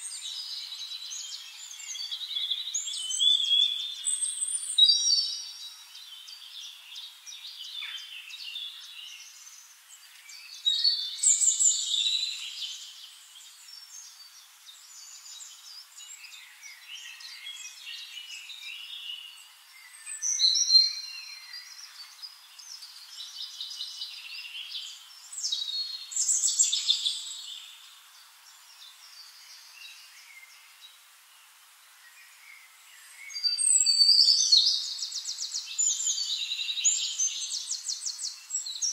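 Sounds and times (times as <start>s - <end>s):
soft bird twittering: 32.0s - 38.9s.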